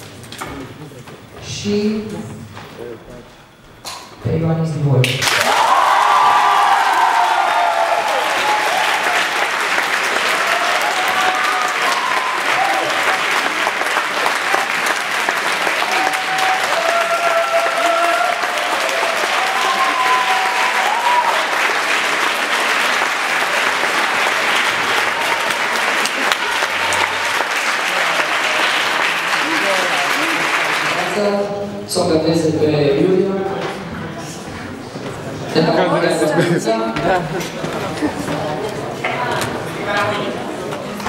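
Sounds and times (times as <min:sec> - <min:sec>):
audience applauding: 0:05.2 - 0:31.5.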